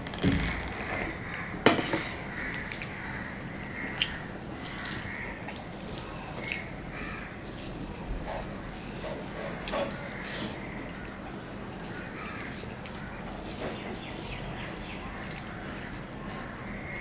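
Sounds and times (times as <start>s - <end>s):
fingers mixing food on metal plate: 3.9s - 17.0s.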